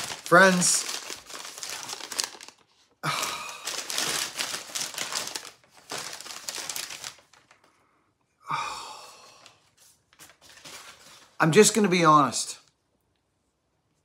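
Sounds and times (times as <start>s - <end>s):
paper crinkling and rustling: 0.0s - 7.7s, 9.7s - 11.6s
breathy sigh: 3.0s - 3.9s, 7.6s - 9.6s.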